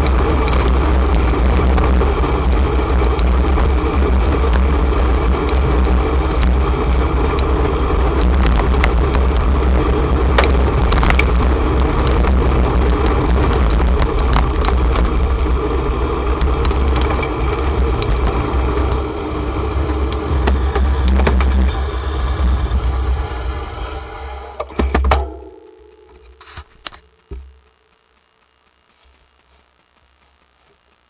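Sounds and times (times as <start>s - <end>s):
wind rushing over microphone: 0.0s - 24.7s
road rumble: 0.0s - 27.4s
small clicks and rattles: 0.0s - 31.0s.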